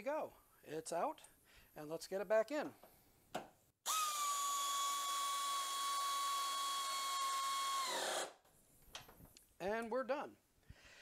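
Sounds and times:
air ratchet whining: 0:03.9 - 0:08.4.

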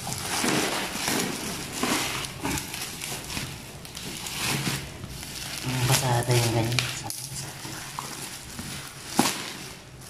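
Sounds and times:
scissors cutting parcel: 0:00.0 - 0:09.8
bubble wrap and tape crinkling: 0:00.0 - 0:10.0.

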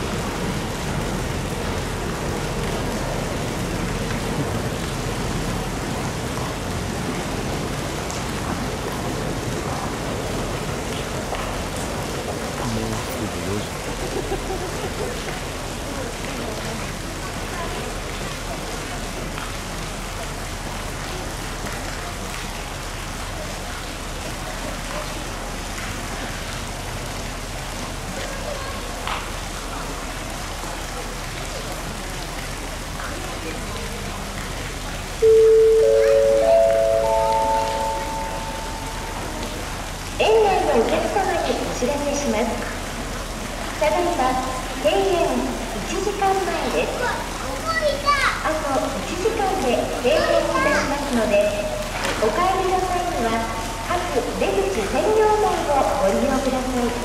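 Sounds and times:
indistinct voices: 0:12.6 - 0:13.9.

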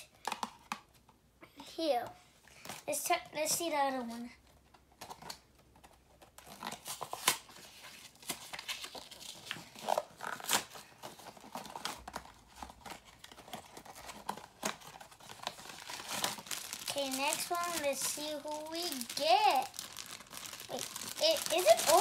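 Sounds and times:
cardboard ripping and crinkling: 0:06.3 - 0:22.0.

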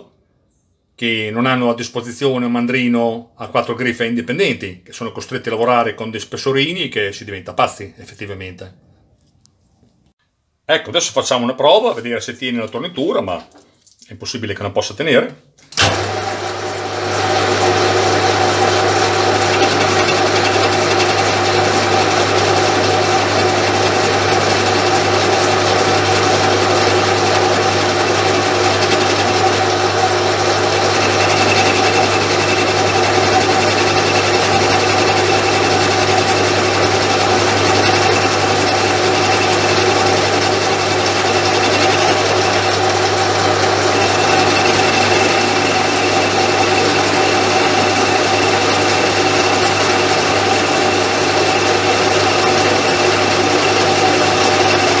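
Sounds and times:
metal lathe running: 0:15.8 - 0:55.0.

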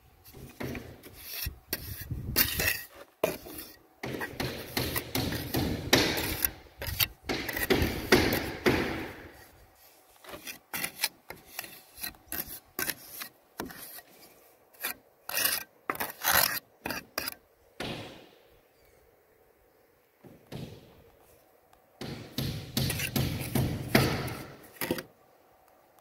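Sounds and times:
trowel scraping mortar on tiles: 0:00.3 - 0:08.5, 0:09.3 - 0:17.4, 0:22.9 - 0:23.6.

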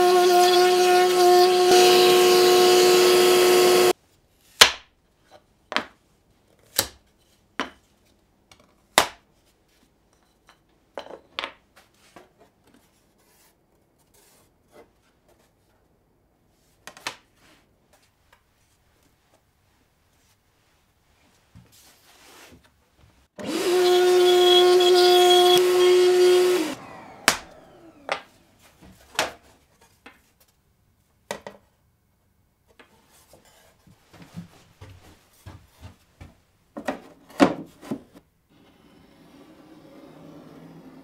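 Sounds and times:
router high whine: 0:00.0 - 0:03.9, 0:23.4 - 0:28.5, 0:38.5 - 0:41.0.

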